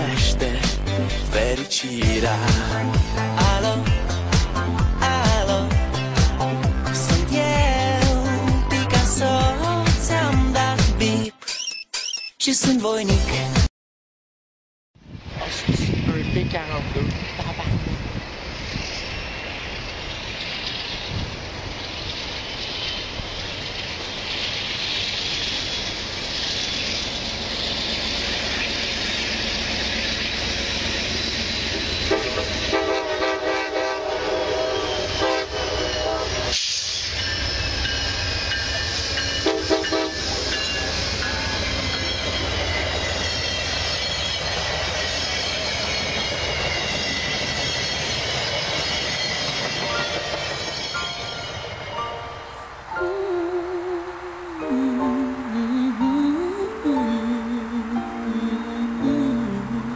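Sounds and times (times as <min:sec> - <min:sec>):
train wheels rumbling on rails: 0:00.0 - 0:11.1, 0:15.2 - 0:52.9
train horn blasts: 0:31.7 - 0:36.6, 0:39.3 - 0:40.8
thin high whine: 0:34.6 - 0:59.9.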